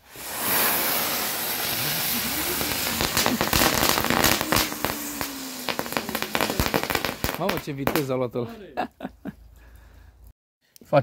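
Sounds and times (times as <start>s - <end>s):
spinner fireworks hissing and whirring: 0.0s - 8.2s
sharp crackles: 0.0s - 8.3s.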